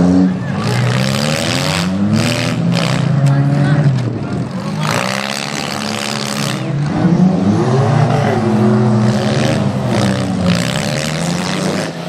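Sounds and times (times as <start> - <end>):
car engines revving: 0.0 - 12.0.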